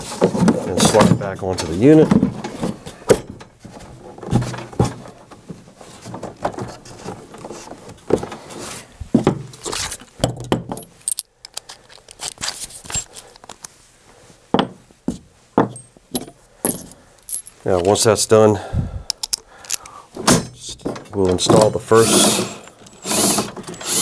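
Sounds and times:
metal bolts and tools clinking: 0:09.6 - 0:13.5, 0:15.7 - 0:18.1, 0:19.1 - 0:24.0.

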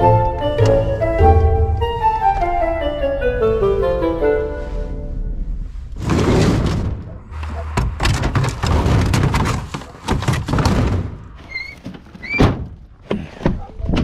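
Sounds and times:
plastic pallets knocking and sliding: 0:06.0 - 0:14.0.

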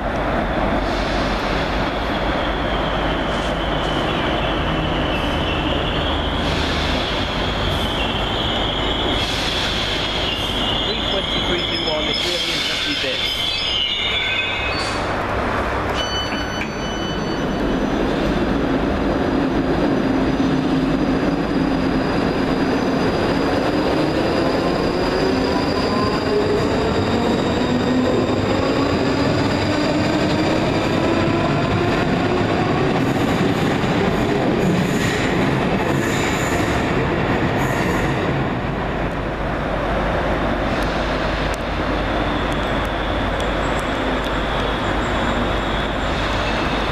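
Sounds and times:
train wheels squealing: 0:00.8 - 0:15.1, 0:16.0 - 0:18.3, 0:20.4 - 0:33.0, 0:42.0 - 0:46.9.

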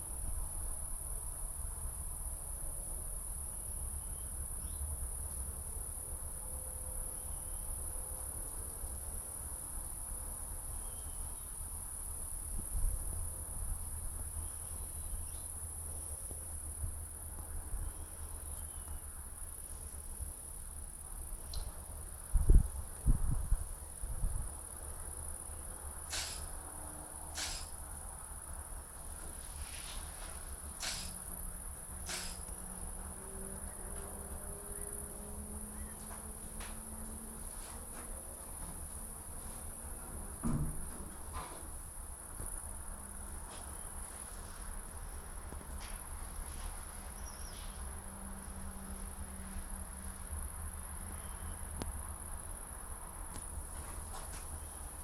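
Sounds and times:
crickets chirping: 0:00.0 - 0:55.0
wind rumble on microphone: 0:12.3 - 0:15.4, 0:21.3 - 0:25.2
thump: 0:40.4 - 0:41.6.

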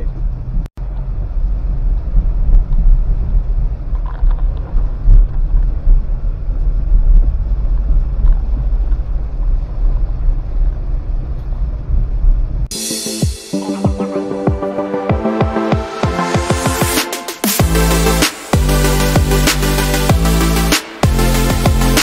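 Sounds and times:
road and engine rumble: 0:00.0 - 0:12.7.

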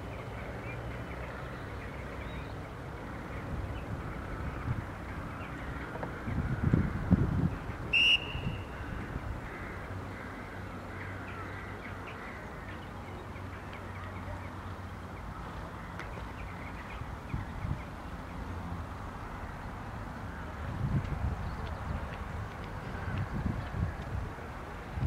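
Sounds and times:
wind rumble on microphone: 0:03.0 - 0:10.0, 0:16.8 - 0:25.0
high whistle blast: 0:07.9 - 0:08.7
faint bird chirps: 0:07.9 - 0:08.8.

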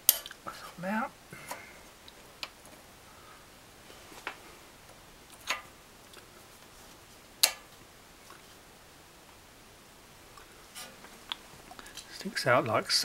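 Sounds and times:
magnet snapping onto steel: 0:00.1 - 0:00.4, 0:05.4 - 0:05.7, 0:07.4 - 0:07.7
sharp metal clicks: 0:07.4 - 0:07.7.

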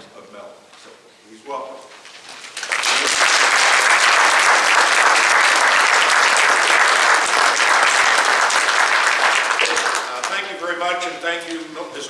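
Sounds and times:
audience applauding: 0:02.5 - 0:10.6.

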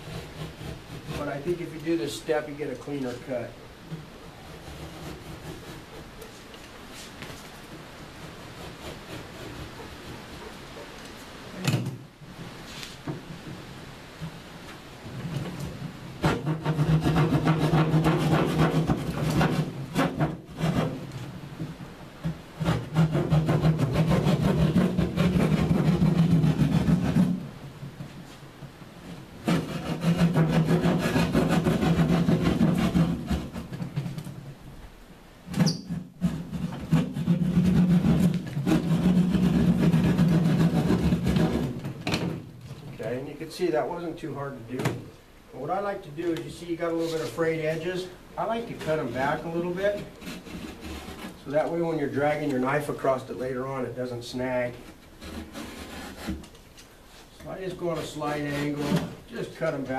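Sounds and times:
saw rasping through drywall: 0:00.0 - 0:02.7, 0:04.4 - 0:06.3, 0:08.0 - 0:10.5, 0:16.2 - 0:21.2, 0:22.2 - 0:27.5, 0:29.4 - 0:34.3, 0:35.6 - 0:42.0, 0:46.8 - 0:52.1, 0:55.2 - 0:56.5, 0:57.6 - 0:59.2.

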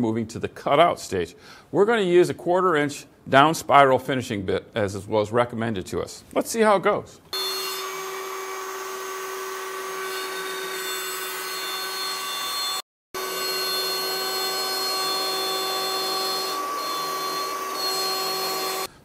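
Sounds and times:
router spindle high whine: 0:07.4 - 0:18.9.

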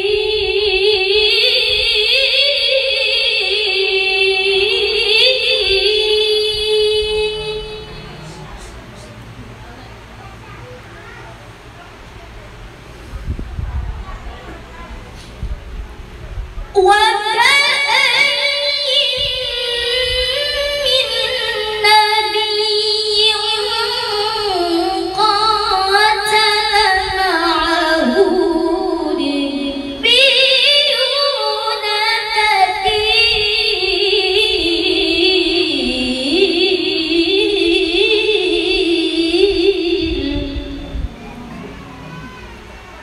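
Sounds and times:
woman singing: 0:00.0 - 0:08.0, 0:16.8 - 0:41.1.

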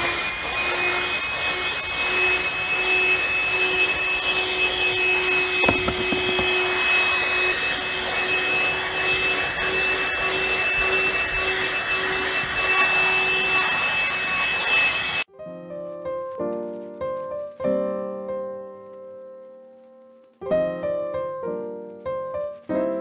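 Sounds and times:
handheld vacuum whining: 0:05.6 - 0:06.8
knock: 0:05.6 - 0:06.8.

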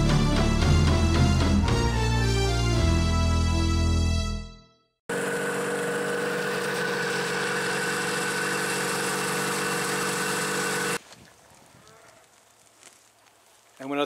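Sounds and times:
snowmobile engine idling: 0:05.1 - 0:11.0.

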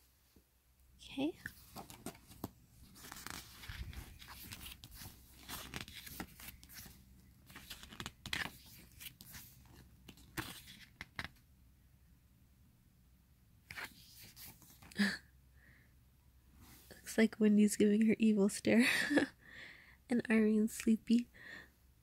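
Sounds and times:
book pages turning: 0:01.4 - 0:11.4, 0:13.7 - 0:14.9.

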